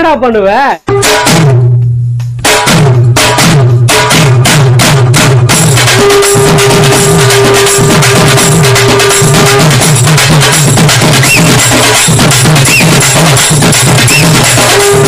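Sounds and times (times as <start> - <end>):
bouncing bass line: 0.0 - 15.0
fast percussion beat: 0.0 - 15.0.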